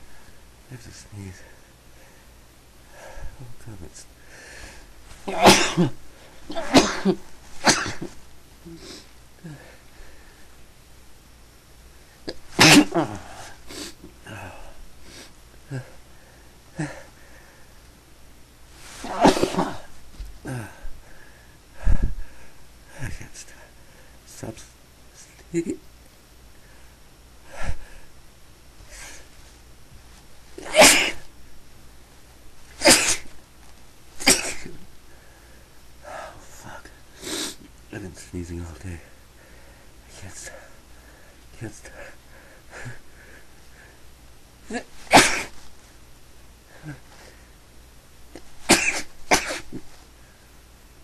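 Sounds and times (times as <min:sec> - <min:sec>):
person sneezing: 0:05.1 - 0:09.7, 0:12.3 - 0:14.6, 0:15.2 - 0:16.0, 0:16.8 - 0:17.1, 0:18.8 - 0:20.9, 0:30.6 - 0:31.3, 0:32.8 - 0:33.3, 0:34.2 - 0:34.8, 0:44.7 - 0:45.7, 0:46.8 - 0:47.3, 0:48.4 - 0:50.0.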